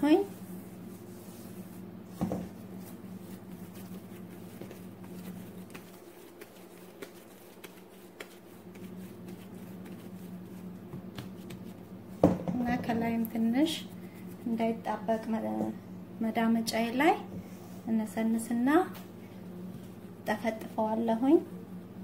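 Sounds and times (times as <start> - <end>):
steady low hum: 0.0 - 22.0
hands tapping and rustling dough: 2.1 - 13.5.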